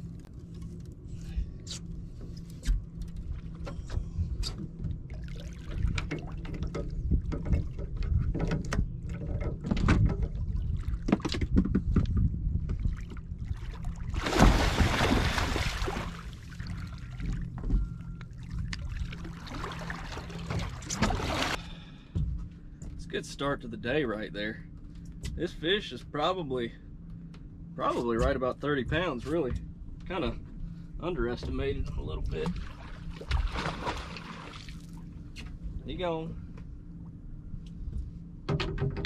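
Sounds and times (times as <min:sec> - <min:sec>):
fish thrashing and splashing: 0:14.1 - 0:17.3.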